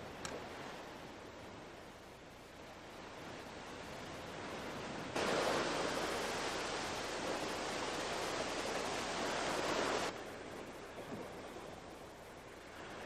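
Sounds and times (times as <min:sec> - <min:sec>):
faint hiss: 0:00.0 - 0:13.0
surf washing against rocks: 0:04.0 - 0:11.8.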